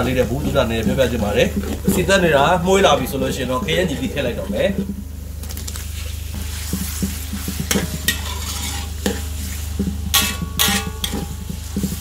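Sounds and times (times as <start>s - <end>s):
food sizzling in oil: 0.0s - 12.0s
steady low hum: 0.0s - 12.0s
metal spatula scraping wok: 6.3s - 12.0s.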